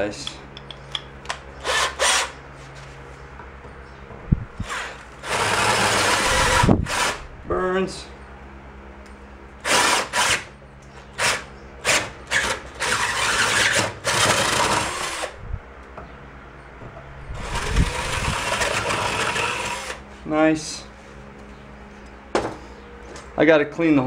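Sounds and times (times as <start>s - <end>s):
cordless drill boring through metal: 1.6s - 2.3s, 4.6s - 7.2s, 9.6s - 10.4s, 11.2s - 15.3s, 17.4s - 20.0s.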